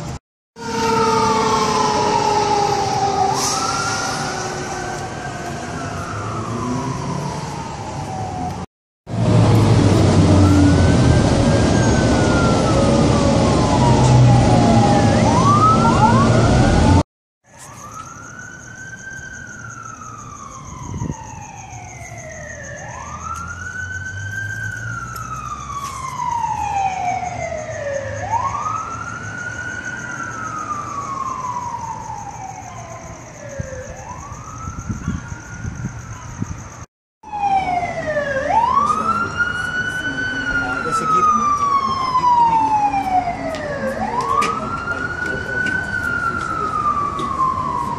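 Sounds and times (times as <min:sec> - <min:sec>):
road and engine noise: 0:00.0 - 0:47.9
siren wailing: 0:00.6 - 0:47.9.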